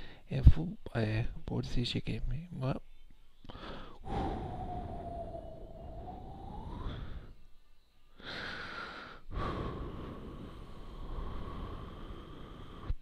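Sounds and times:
thin steady whistle: 0:02.9 - 0:13.0
breath blowing up balloon: 0:04.0 - 0:07.4, 0:08.2 - 0:13.0.

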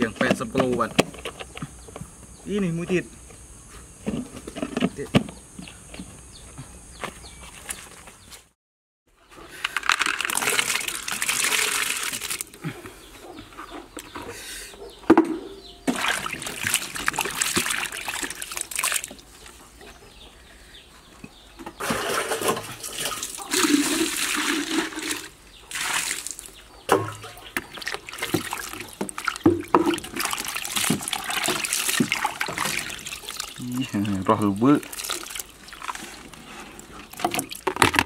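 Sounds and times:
water splashing in steel sink: 0:15.9 - 0:19.2, 0:27.6 - 0:33.7, 0:34.3 - 0:36.0.

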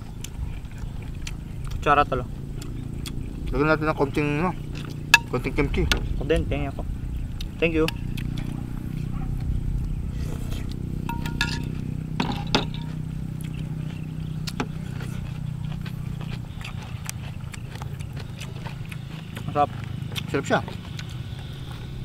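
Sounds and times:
chewing: 0:00.0 - 0:22.0
steady low hum: 0:00.0 - 0:22.0
shells and fingers on plastic plates: 0:11.1 - 0:13.0.

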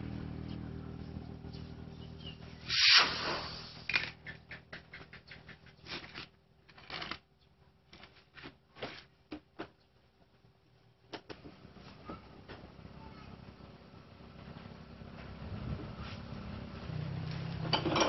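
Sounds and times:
inner tube scraping against tyre: 0:05.7 - 0:09.2.

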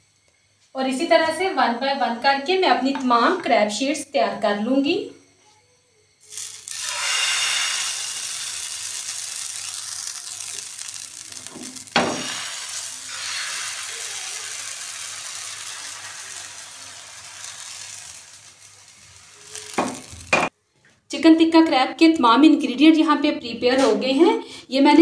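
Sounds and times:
batter sizzling in frying pan: 0:06.3 - 0:20.5
pan clattering on burner: 0:10.7 - 0:13.4, 0:19.5 - 0:20.5.

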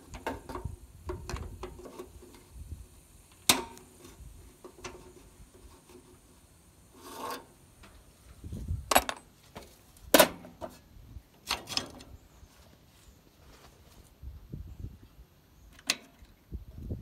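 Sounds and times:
knocks and scrapes on metal: 0:07.0 - 0:07.5.

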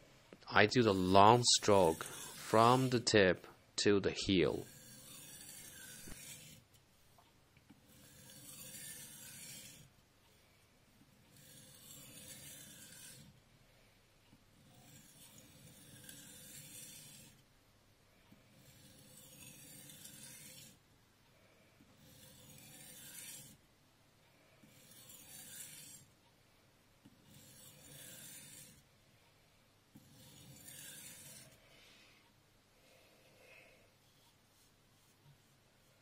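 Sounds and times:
knife stroked on whetstone: 0:00.8 - 0:03.1, 0:04.4 - 0:06.7, 0:07.8 - 0:09.9, 0:11.3 - 0:13.4, 0:14.6 - 0:17.4, 0:18.5 - 0:20.8, 0:21.9 - 0:23.6, 0:24.6 - 0:26.1, 0:27.1 - 0:28.8, 0:30.0 - 0:31.7.

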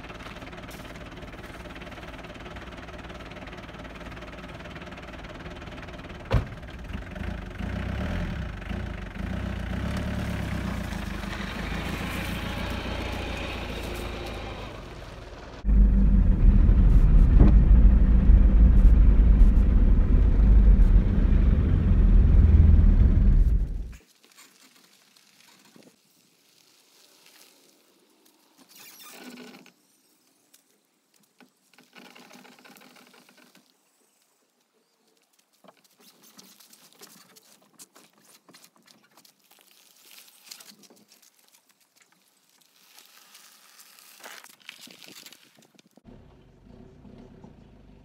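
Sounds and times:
diesel engine idling: 0:00.0 - 0:23.9.

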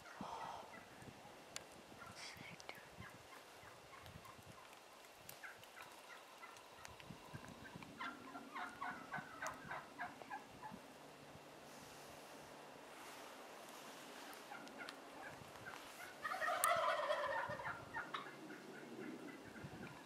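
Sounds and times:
wild turkeys calling: 0:03.0 - 0:11.2, 0:14.0 - 0:20.0.

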